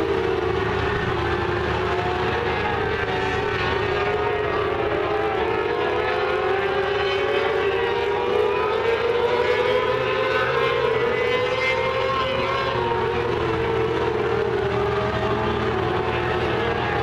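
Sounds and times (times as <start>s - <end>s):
race car engines whining: 0.0s - 17.0s.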